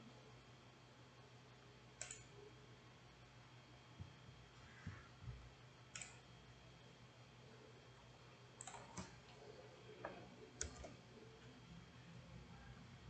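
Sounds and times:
low steady hum: 0.0s - 13.0s
computer mouse clicks: 2.0s - 2.3s, 5.9s - 6.2s, 8.6s - 9.3s, 10.0s - 11.0s.

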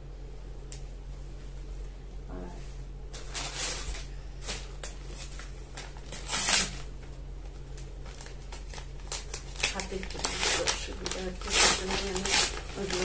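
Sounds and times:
packaging rustling and crinkling: 3.1s - 13.0s.

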